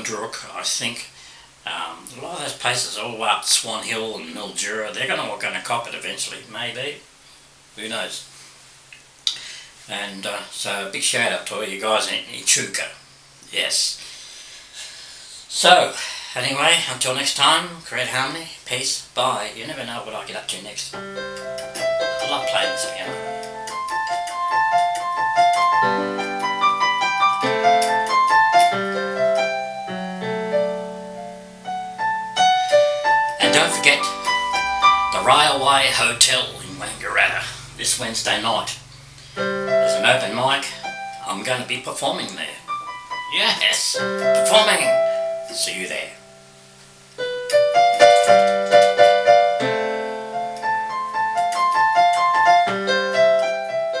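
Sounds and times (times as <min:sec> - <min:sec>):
electronic keyboard piano melody: 0:04.1 - 0:05.3, 0:20.9 - 0:54.0.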